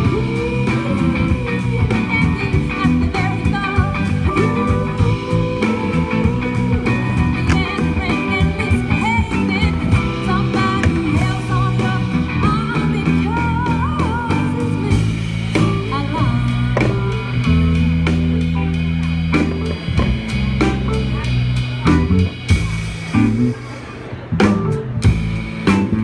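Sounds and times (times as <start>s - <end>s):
woman singing: 0.0s - 17.7s
drum kit: 0.0s - 26.0s
electric guitar: 0.0s - 26.0s.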